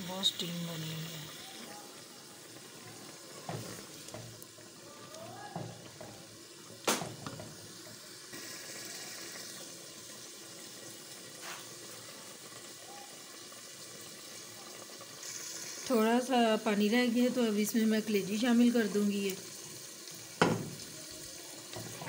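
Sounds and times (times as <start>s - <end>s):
pot simmering and bubbling: 0.0s - 22.0s
wooden spoon stirring: 2.7s - 4.4s.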